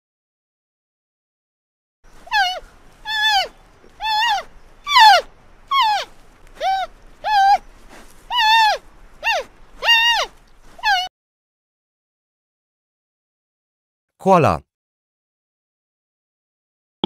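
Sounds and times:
panda high-pitched calls: 0:02.2 - 0:11.1.

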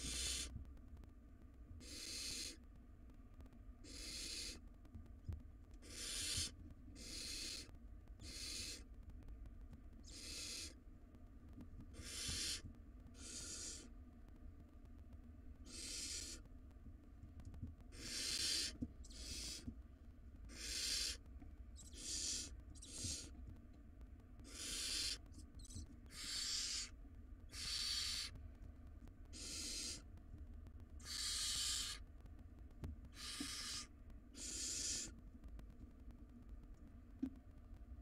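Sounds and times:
owl nestlings hissing: 0:00.0 - 0:00.5, 0:01.8 - 0:02.6, 0:03.8 - 0:04.6, 0:05.8 - 0:08.9, 0:10.1 - 0:10.8, 0:11.9 - 0:12.6, 0:13.2 - 0:13.9, 0:15.6 - 0:16.4, 0:17.9 - 0:19.7, 0:20.5 - 0:21.2, 0:21.8 - 0:23.3, 0:24.4 - 0:28.4, 0:29.3 - 0:30.0, 0:31.0 - 0:32.0, 0:33.1 - 0:35.1.

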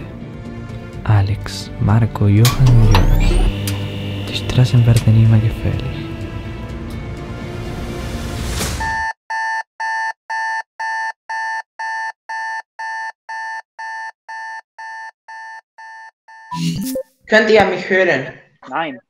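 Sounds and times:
background music: 0:00.0 - 0:08.9.

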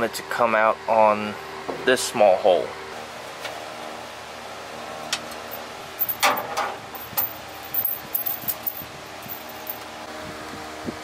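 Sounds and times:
background hum: 0:05.1 - 0:10.0.

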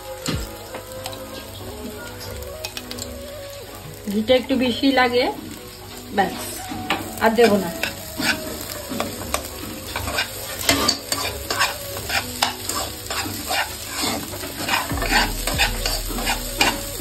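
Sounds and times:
light sizzle in pan: 0:00.0 - 0:17.0
wooden spatula scraping a pan: 0:06.2 - 0:17.0.

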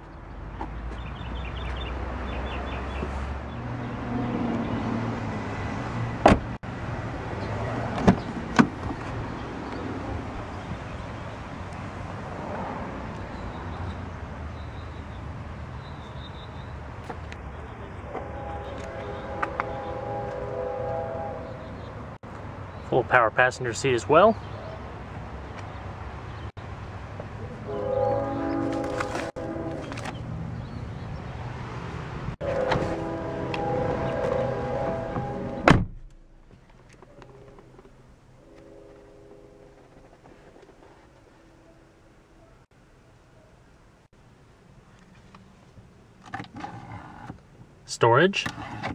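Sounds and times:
car door shutting: 0:06.2 - 0:06.6, 0:33.6 - 0:36.1.

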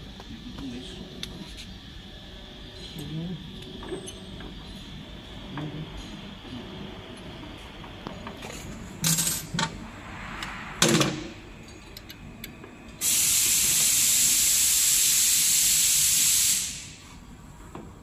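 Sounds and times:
compressed air hiss: 0:13.0 - 0:17.2.

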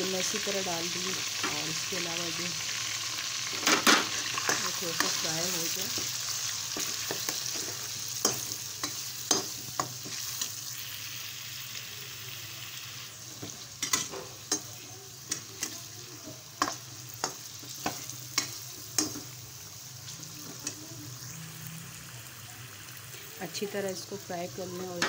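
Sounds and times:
meat sizzling in hot oil: 0:00.0 - 0:25.0
steel spoon scraping a pan: 0:03.4 - 0:10.6, 0:13.4 - 0:15.8.

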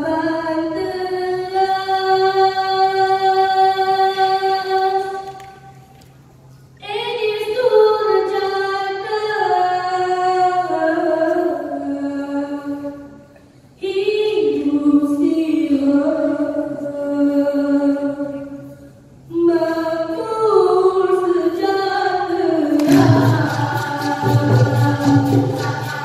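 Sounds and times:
young voices singing unaccompanied: 0:19.4 - 0:26.0.

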